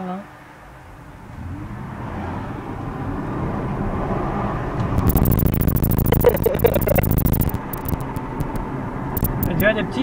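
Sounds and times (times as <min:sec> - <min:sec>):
fast run of clicks: 0:05.0 - 0:08.6, 0:09.2 - 0:09.7.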